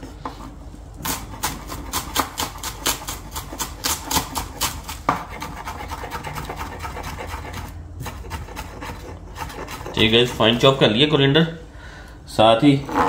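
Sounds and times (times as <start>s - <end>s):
knife chopping on wooden board: 1.0s - 10.4s.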